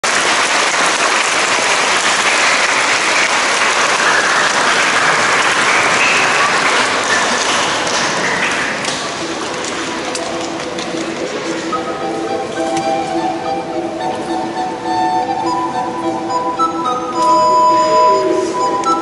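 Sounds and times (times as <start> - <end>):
audience applauding: 0.0 - 13.7.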